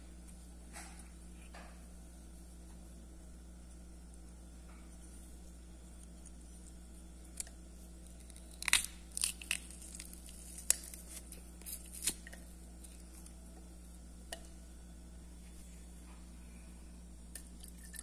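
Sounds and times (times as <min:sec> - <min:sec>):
garlic crunching in a press: 0:06.0 - 0:13.4.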